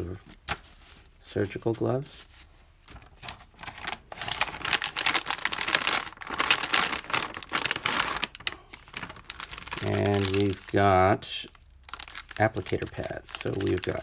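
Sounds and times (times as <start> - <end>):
foil pouch crinkling: 2.9 - 14.0.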